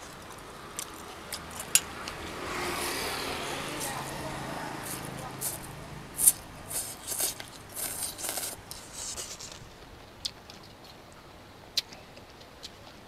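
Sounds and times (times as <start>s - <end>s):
chewing with clicks: 0.0s - 2.3s, 9.4s - 13.0s
person slurping noodles: 4.8s - 9.5s.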